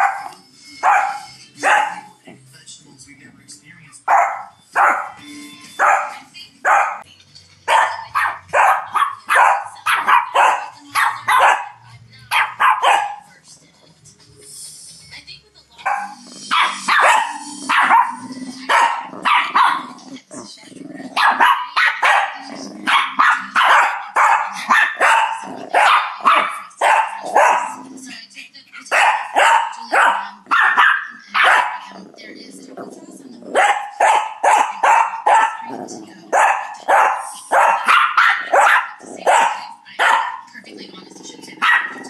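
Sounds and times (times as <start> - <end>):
dog barking: 0.0 - 2.2, 4.1 - 5.2, 5.8 - 7.0, 7.7 - 13.3, 15.8 - 20.0, 21.1 - 27.8, 28.9 - 32.0, 33.5 - 40.6, 41.5 - 42.0.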